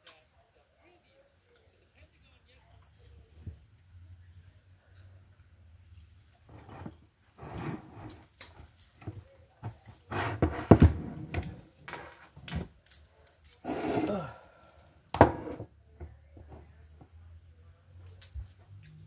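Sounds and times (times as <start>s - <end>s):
utensil scraping in a bowl: 6.5s - 8.2s, 10.1s - 11.3s, 13.6s - 14.2s.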